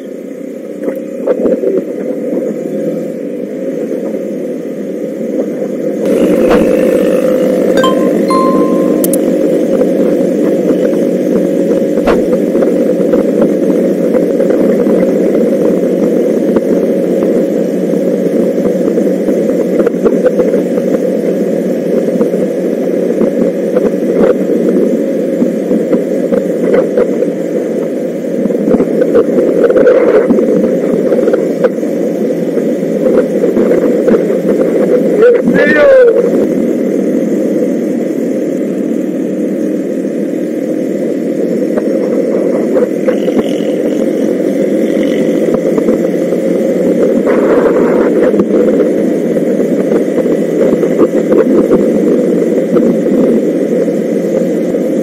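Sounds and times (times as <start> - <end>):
motorcycle engine running: 6.0 - 7.8, 43.0 - 46.8.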